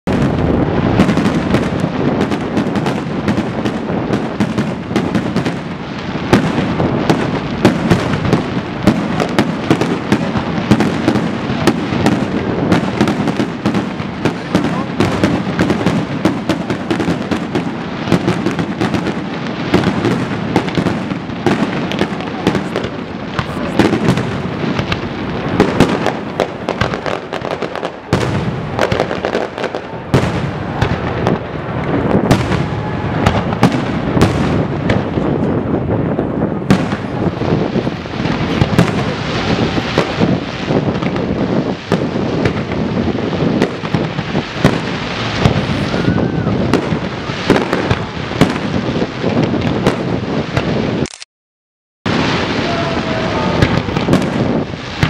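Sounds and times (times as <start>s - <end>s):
fireworks bursting: 0.0s - 51.2s, 52.1s - 55.0s.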